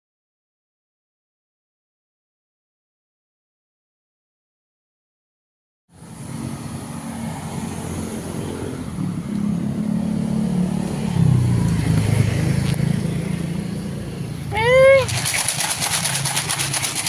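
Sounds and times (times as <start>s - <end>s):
motor vehicle engines running: 5.9s - 17.0s.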